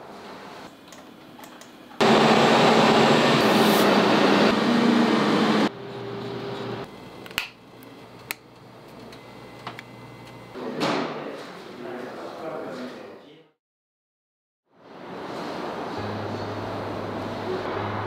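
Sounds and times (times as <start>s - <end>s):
loud machine hum: 2.0s - 7.3s, 15.6s - 18.0s.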